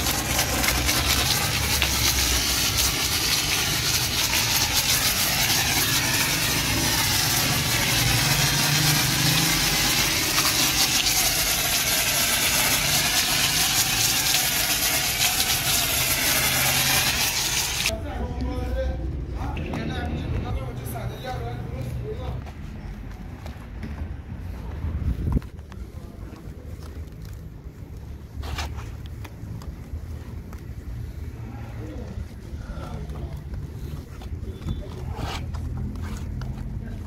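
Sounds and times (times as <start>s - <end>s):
pressure washer spraying: 0.0s - 17.9s.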